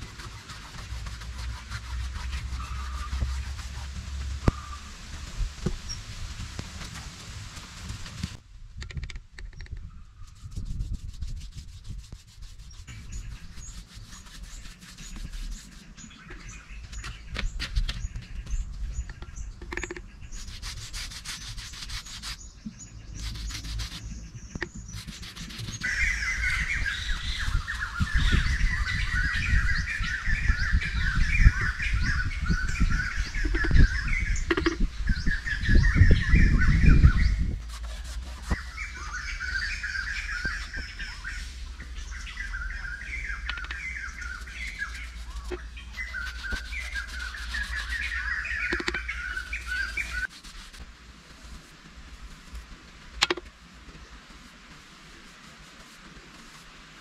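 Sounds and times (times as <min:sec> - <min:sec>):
brush scraping on cement: 0:00.0 - 0:08.4, 0:10.2 - 0:57.0
birds chirping and singing: 0:00.2 - 0:03.8, 0:04.4 - 0:05.3, 0:12.5 - 0:50.3
clicks and taps: 0:53.2 - 0:53.5.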